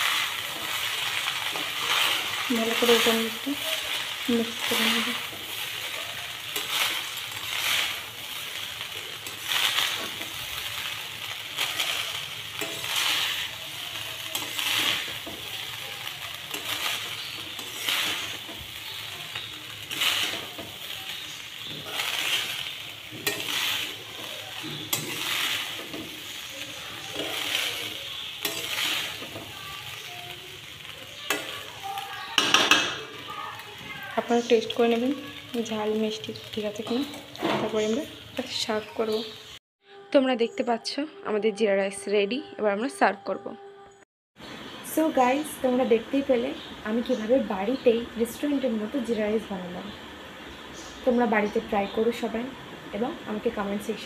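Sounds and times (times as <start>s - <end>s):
metal spatula scraping: 0.0s - 35.7s
oil sizzling: 0.0s - 39.6s, 44.4s - 54.0s.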